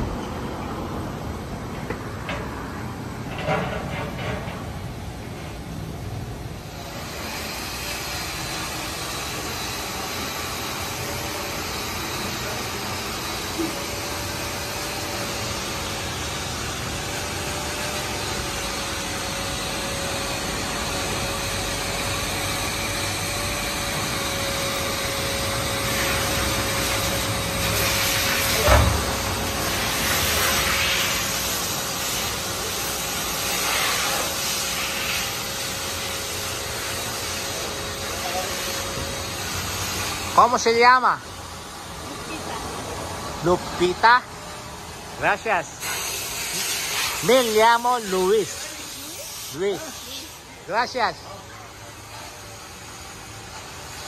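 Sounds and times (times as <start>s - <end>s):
car wash motor whining: 0.0s - 54.0s
hissing bursts: 6.6s - 40.8s, 45.2s - 51.0s.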